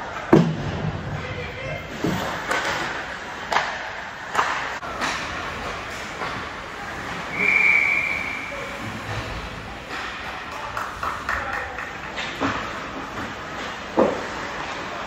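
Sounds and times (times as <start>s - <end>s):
referee's whistle: 7.3s - 8.6s.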